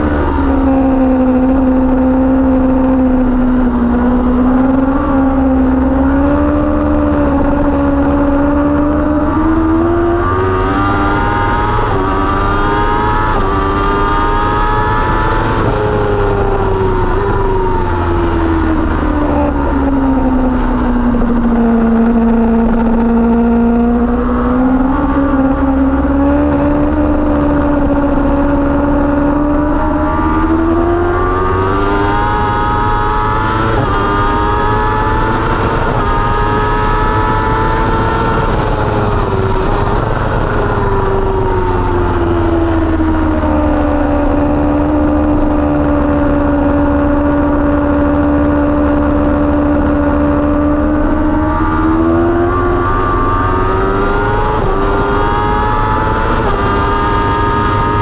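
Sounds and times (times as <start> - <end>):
motorcycle engine running hard: 0.0 - 58.0
wind rumble: 0.0 - 58.0.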